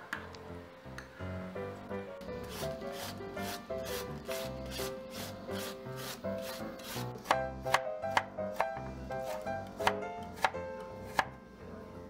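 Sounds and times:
background music: 0.0s - 12.0s
knife chopping on wooden board: 2.5s - 11.4s.

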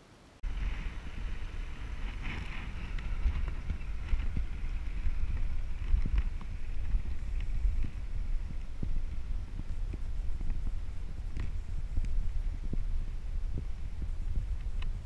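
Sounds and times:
steady hiss: 0.0s - 15.0s
heavy wind rumble on microphone: 0.4s - 15.0s.

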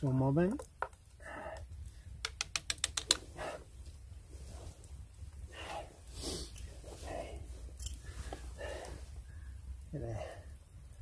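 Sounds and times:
campfire crackling: 0.0s - 11.0s
sharp pops: 2.1s - 3.4s
rustling on dry leaves: 3.9s - 9.2s.

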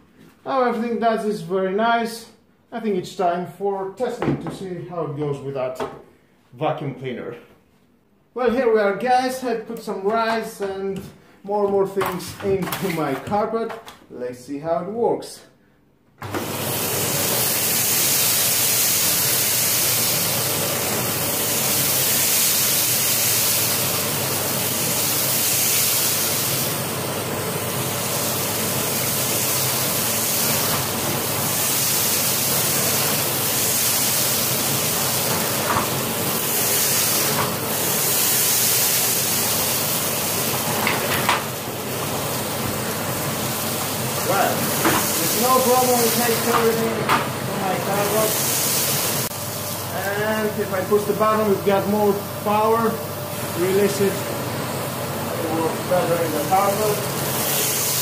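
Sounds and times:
vacuum cleaner running: 16.2s - 58.0s.

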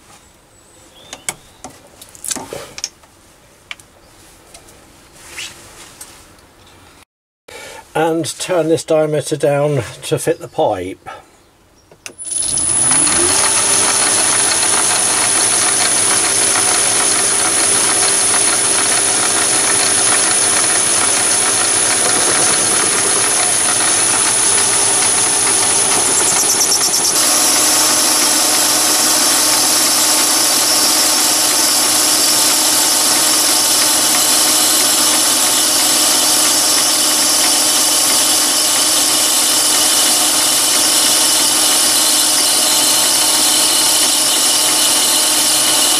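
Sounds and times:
lathe whining: 12.1s - 45.9s.

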